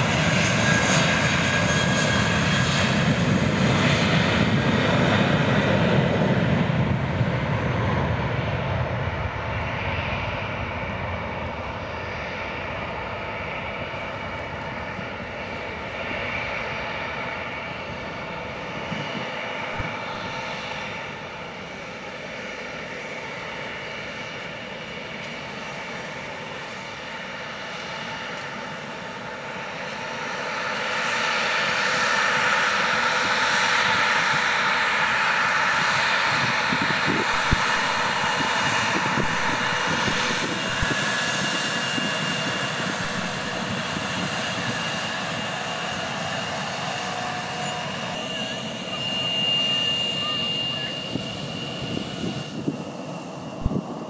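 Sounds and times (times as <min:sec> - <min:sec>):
jet engines at takeoff: 0:00.0 - 0:54.0
hissy jet engine noise: 0:31.3 - 0:54.0.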